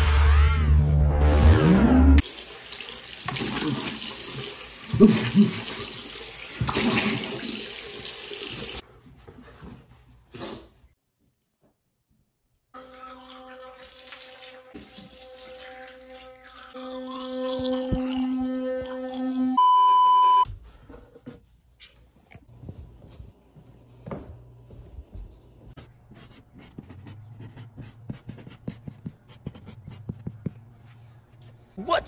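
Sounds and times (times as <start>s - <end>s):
electric toothbrush buzzing: 12.8s - 19.6s
loud steady beep: 19.6s - 20.5s.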